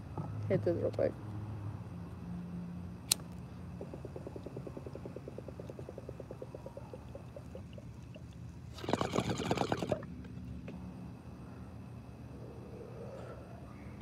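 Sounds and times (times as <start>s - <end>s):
water bubbling in pipe: 3.7s - 10.1s.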